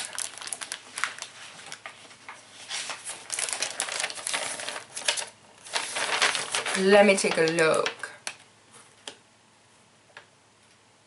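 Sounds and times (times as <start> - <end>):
cellophane crinkling: 0.0 - 8.4.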